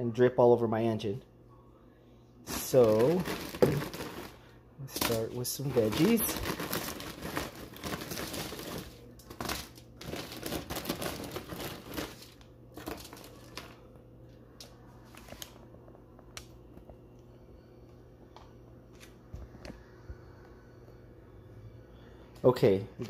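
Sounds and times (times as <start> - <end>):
low hum: 1.2 - 22.4
packaging and foil crinkling: 2.5 - 13.9, 14.6 - 15.7.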